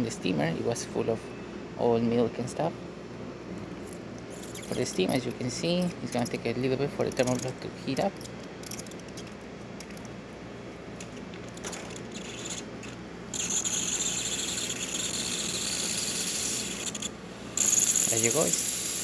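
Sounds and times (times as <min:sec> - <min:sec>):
espresso machine low hum: 0:11.9 - 0:19.0
high-pitched steam hiss: 0:13.4 - 0:19.0.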